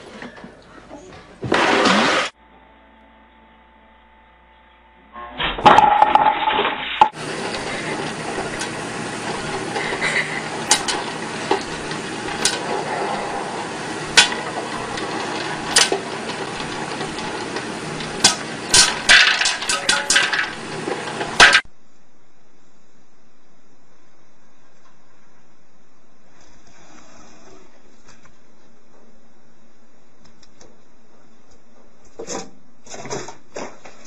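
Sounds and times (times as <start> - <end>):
popcorn sizzling and popping: 1.4 - 2.4, 5.5 - 21.7
loud clatter: 5.6 - 21.7.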